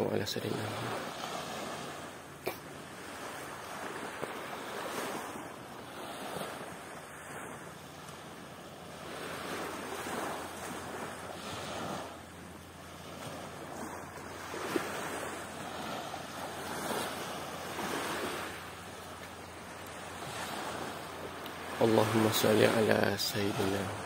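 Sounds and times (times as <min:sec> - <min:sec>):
rushing water: 0:13.8 - 0:24.0.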